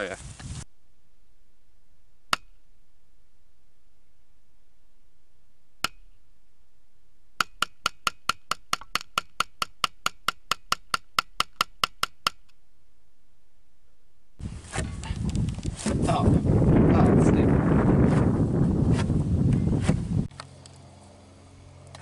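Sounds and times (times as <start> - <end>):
sharp wood-block-like clicks: 7.4 - 12.6.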